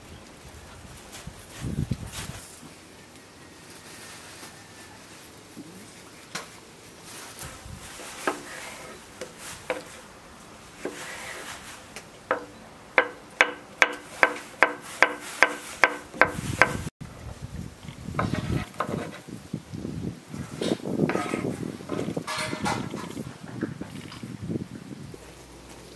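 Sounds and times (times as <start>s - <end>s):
knife scraping across board: 7.9s - 10.1s, 10.8s - 16.9s, 18.2s - 19.3s, 20.6s - 23.1s
knife chopping on wooden board: 12.3s - 16.9s.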